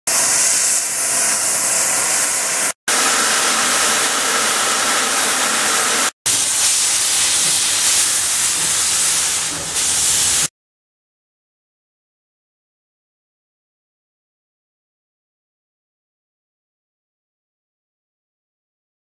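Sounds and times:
steam locomotive hissing: 0.1s - 10.5s.

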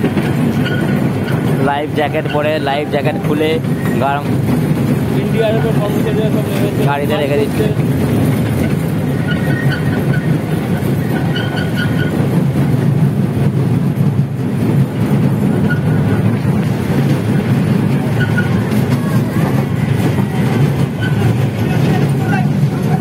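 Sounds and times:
toy train rumbling on track: 0.0s - 23.0s.

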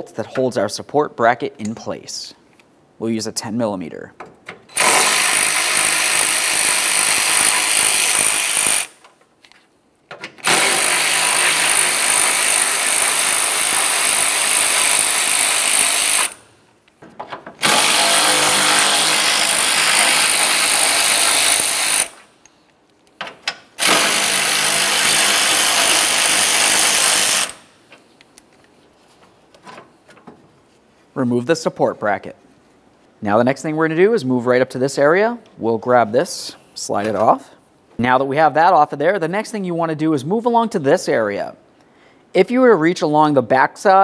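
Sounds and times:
electric ratchet running: 4.7s - 9.0s, 10.4s - 16.4s, 17.6s - 22.3s, 23.8s - 27.6s.

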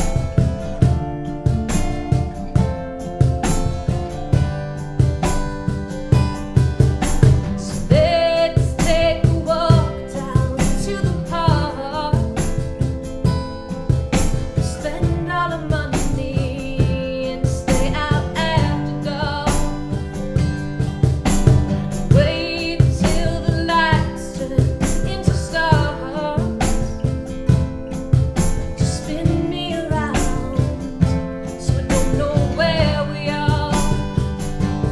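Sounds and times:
acoustic guitars strumming: 0.0s - 34.9s
cajon beat: 0.0s - 34.9s
keyboard: 0.0s - 34.9s
woman singing: 7.4s - 13.7s, 14.3s - 20.6s, 22.0s - 34.9s.

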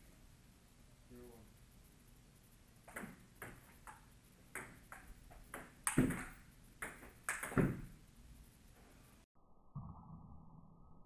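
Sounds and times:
ping pong ball clicking off paddles: 2.9s - 8.0s.

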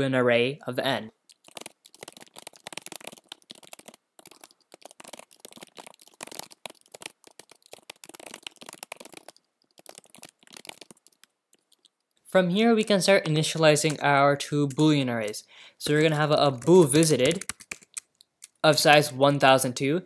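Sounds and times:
computer keyboard typing: 1.3s - 12.1s, 14.7s - 18.6s.

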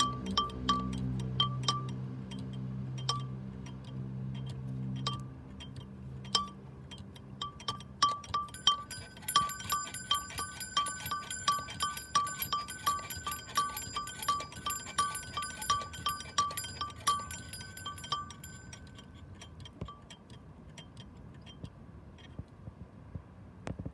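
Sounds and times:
clay bell ringing: 7.4s - 19.2s
higher-pitched bell ringing: 8.4s - 18.9s.

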